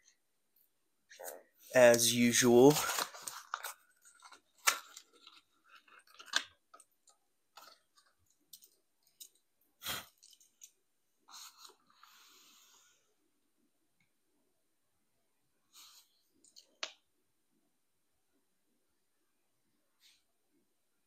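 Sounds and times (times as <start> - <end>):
small objects clicking and rustling: 2.7 - 9.5, 10.1 - 10.8.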